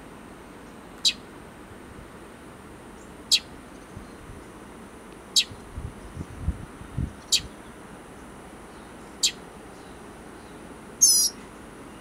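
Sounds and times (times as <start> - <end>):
bird fledgling calling: 1.0 - 1.2, 3.3 - 3.5, 5.3 - 5.6, 7.2 - 7.6, 9.0 - 12.0.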